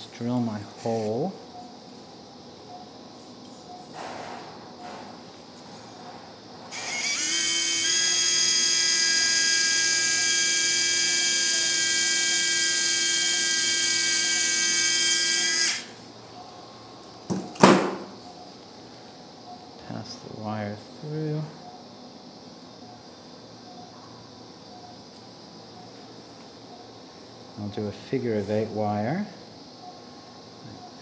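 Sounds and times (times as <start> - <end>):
power drill high whine: 6.7 - 16.0.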